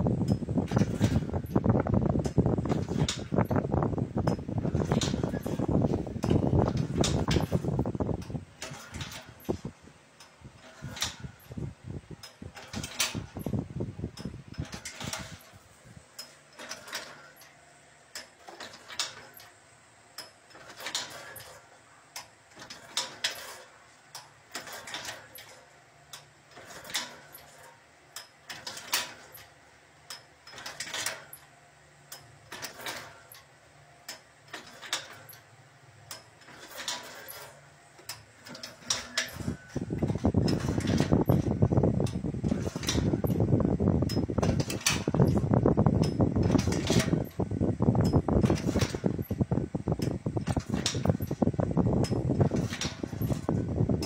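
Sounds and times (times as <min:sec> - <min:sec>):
machine clacking: 0:04.2 - 0:11.6, 0:12.2 - 0:13.6, 0:14.2 - 0:19.6, 0:20.2 - 0:31.5, 0:32.1 - 0:35.5, 0:36.1 - 0:47.4, 0:48.0 - 0:49.4, 0:50.0 - 0:54.0
light mechanical clicks: 0:12.2 - 0:47.4.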